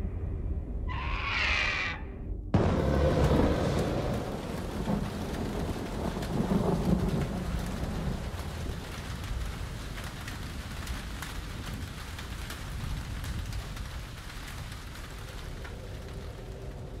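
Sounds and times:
low rumble: 0.0s - 7.4s
steady rain-like patter: 2.6s - 17.0s.

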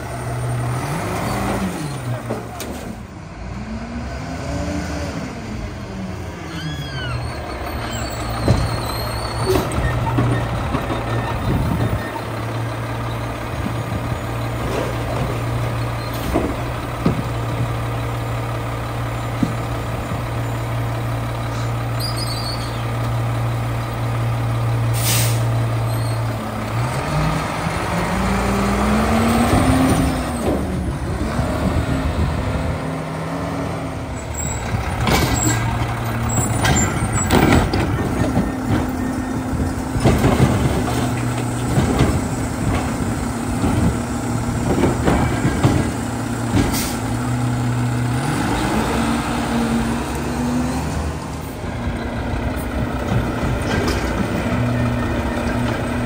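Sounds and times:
truck engine revving: 0.0s - 56.0s
brake squeal: 1.1s - 3.0s, 6.4s - 13.4s, 14.1s - 16.7s, 21.4s - 23.2s, 24.9s - 26.4s, 34.1s - 41.2s.

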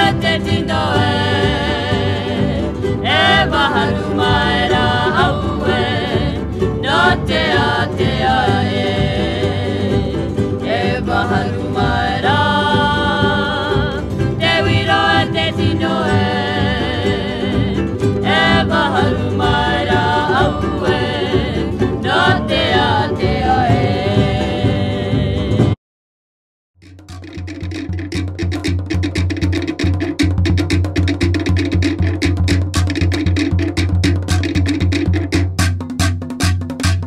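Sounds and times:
music with singing voices: 0.0s - 25.8s.

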